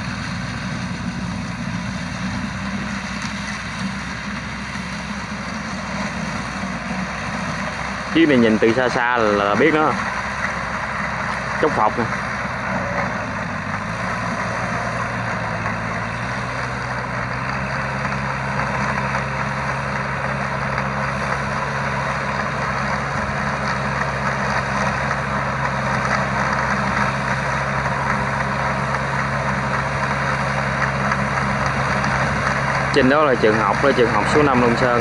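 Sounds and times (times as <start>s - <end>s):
tractor diesel engine: 0.0s - 35.0s.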